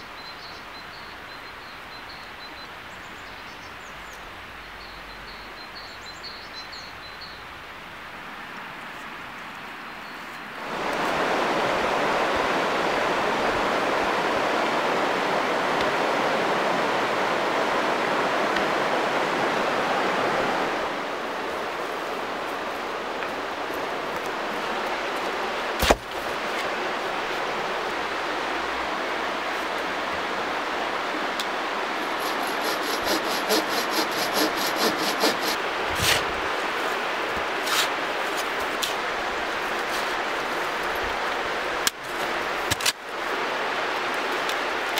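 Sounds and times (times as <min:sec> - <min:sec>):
river rushing over rocks: 0:07.5 - 0:44.9
shovel digging into soil: 0:25.8 - 0:26.2, 0:32.2 - 0:36.3, 0:37.6 - 0:39.0.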